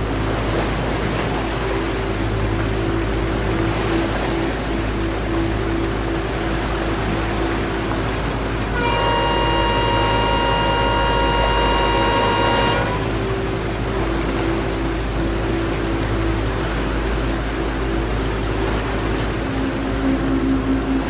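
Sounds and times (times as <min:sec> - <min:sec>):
long horn blast: 0:08.6 - 0:13.7.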